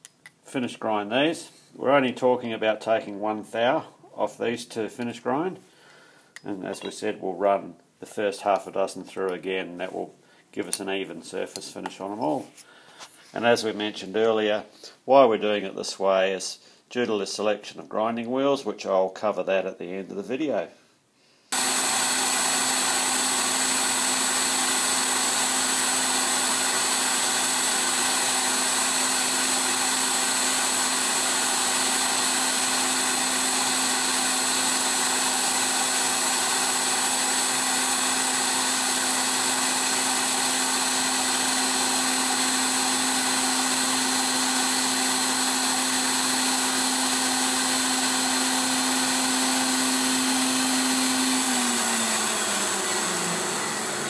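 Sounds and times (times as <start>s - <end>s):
grinder humming: 21.5s - 54.0s.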